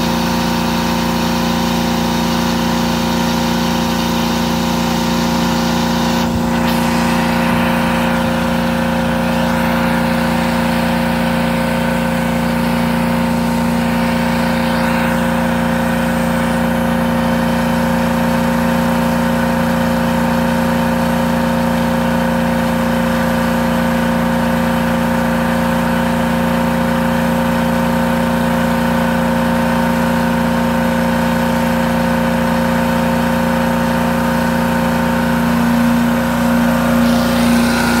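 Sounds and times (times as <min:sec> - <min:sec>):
carpet cleaning machine humming: 0:00.0 - 0:38.0
rush of air: 0:04.9 - 0:16.5.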